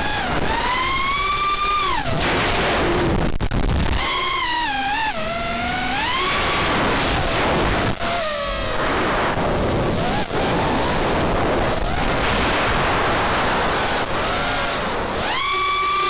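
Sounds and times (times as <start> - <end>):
drone motors whining: 0.0 - 16.0
wind rushing on microphone: 6.3 - 15.4.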